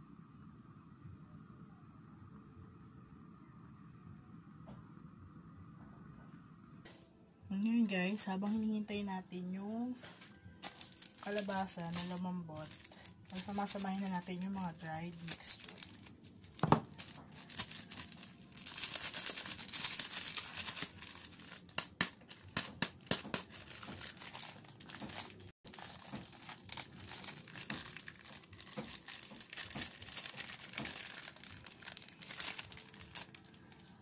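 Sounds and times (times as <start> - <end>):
plastic bag crinkling: 10.6 - 34.0.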